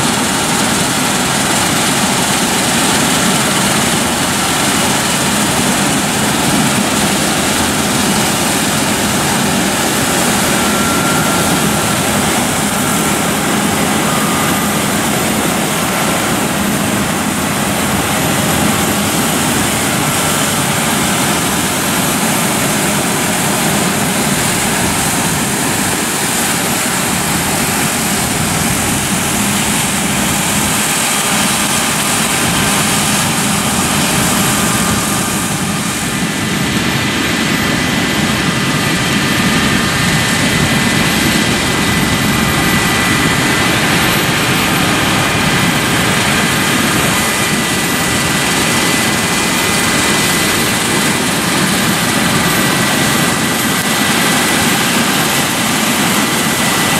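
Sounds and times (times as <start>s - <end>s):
combine harvester engine droning: 0.0s - 56.9s.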